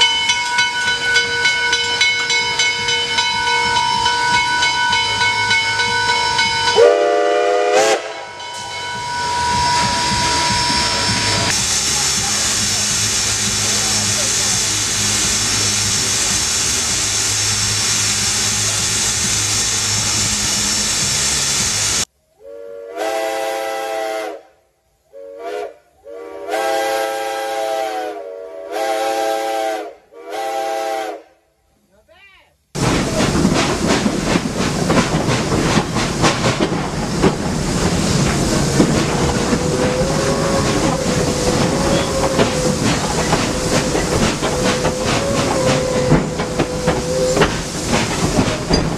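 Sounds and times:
chime whistle blasts: 0.0s - 11.5s
steam locomotive hissing: 0.0s - 24.4s, 25.0s - 31.2s, 32.8s - 48.9s
locomotive steam exhaust: 0.0s - 31.3s, 32.8s - 48.9s.

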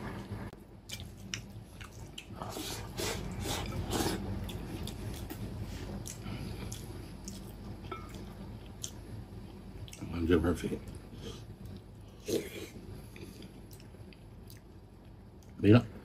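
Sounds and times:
chewing: 0.9s - 9.0s, 13.1s - 15.6s.

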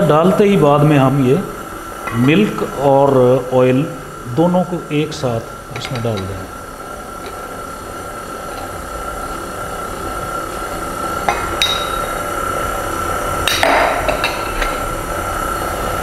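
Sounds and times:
stand mixer motor whine: 0.0s - 16.0s
glass bowl clinking: 11.3s - 12.2s.

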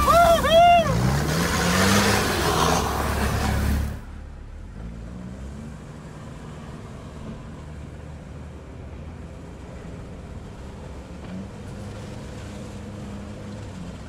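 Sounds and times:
rushing noise: 0.0s - 4.3s
diesel engine running hard: 0.0s - 14.0s.

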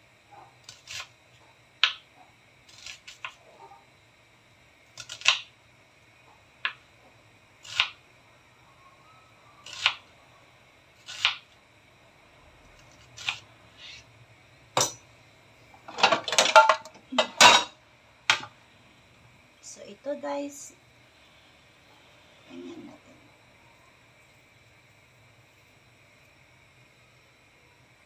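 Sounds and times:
knife slicing onion on cutting board: 0.6s - 1.1s, 2.7s - 3.4s, 4.9s - 5.5s, 7.6s - 8.0s, 9.6s - 10.1s, 11.0s - 11.6s, 12.8s - 14.0s.

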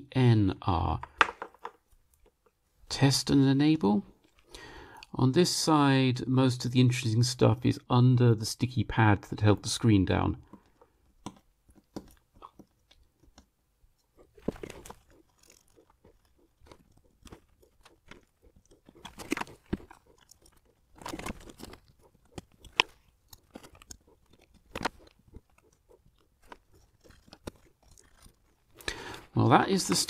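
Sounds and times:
cotton swab scraping adhesive: 10.5s - 28.9s.

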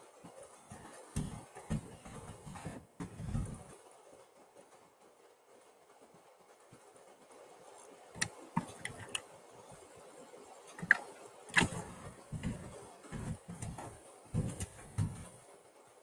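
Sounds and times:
faint steady hiss: 0.0s - 16.0s
light clicks and soft knocks: 0.2s - 3.9s, 6.4s - 15.5s.

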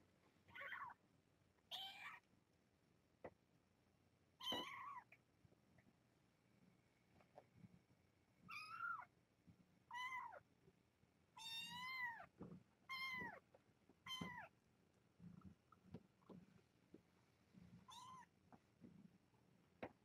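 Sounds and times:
kitten meowing: 0.5s - 1.0s, 1.7s - 2.2s, 4.4s - 5.1s, 8.5s - 9.1s, 9.9s - 10.4s, 11.4s - 12.3s, 12.9s - 13.4s, 14.0s - 14.5s, 17.9s - 18.3s.

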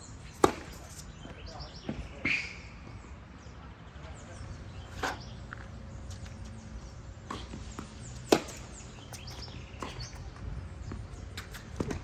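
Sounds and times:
tennis ball bouncing on hard court: 7.2s - 12.0s
tennis racket hitting ball: 7.3s - 10.0s.

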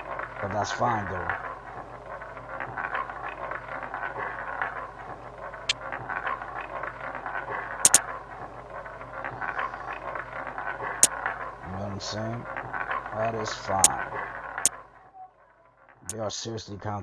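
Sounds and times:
sharp clicks: 7.8s - 8.0s.

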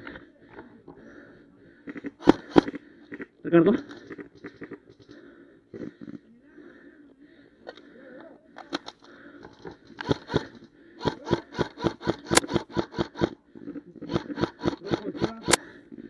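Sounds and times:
sharp clicks and snaps: 1.8s - 5.2s
louder sharp cracks: 1.9s - 3.3s, 10.0s - 13.4s.

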